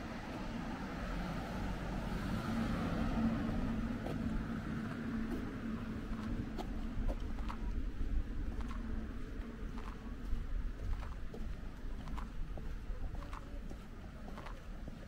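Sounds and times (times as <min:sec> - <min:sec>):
car passing close by: 0:00.0 - 0:06.1.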